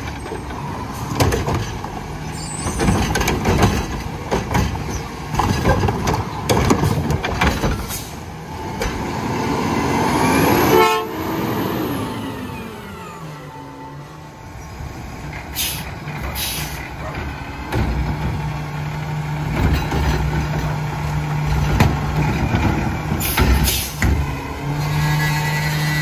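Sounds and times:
truck clanks and bangs: 0.0s - 9.5s, 14.8s - 26.0s.

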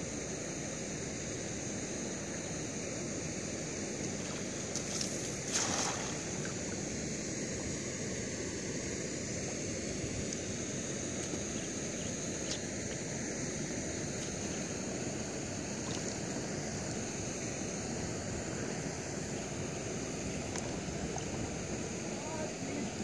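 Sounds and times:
high hiss: 0.0s - 23.0s
person wading in water: 4.1s - 6.9s, 15.7s - 16.4s.

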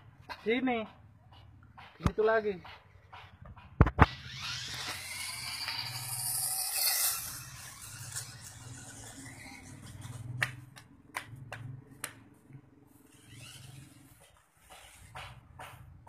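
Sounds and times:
toy car electric motor and gears: 4.0s - 10.4s, 13.0s - 15.1s.

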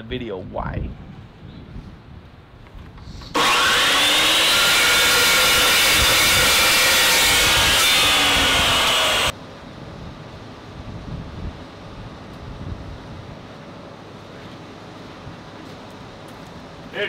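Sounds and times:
chop saw motor whine: 3.3s - 9.3s.

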